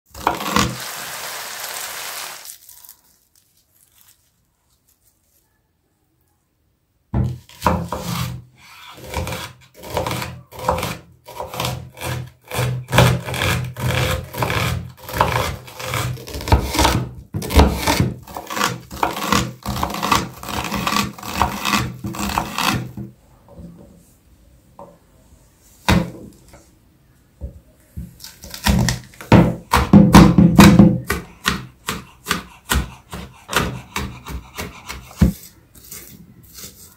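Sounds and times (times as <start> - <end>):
knife chopping on wooden board: 28.0 - 35.4.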